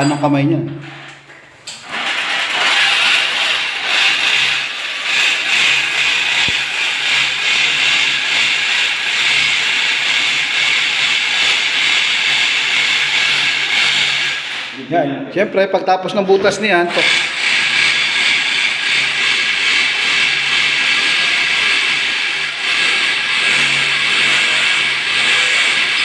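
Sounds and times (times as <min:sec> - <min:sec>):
electric drill boring tile: 0:00.9 - 0:14.8, 0:16.8 - 0:26.0.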